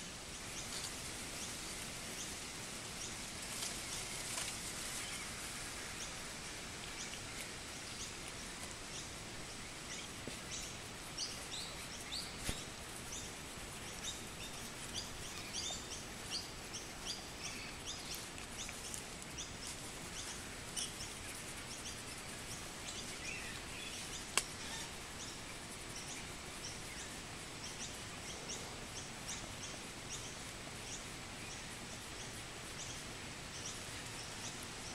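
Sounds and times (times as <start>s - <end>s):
outdoor background noise: 0.0s - 34.9s
bird chirping: 6.8s - 34.6s.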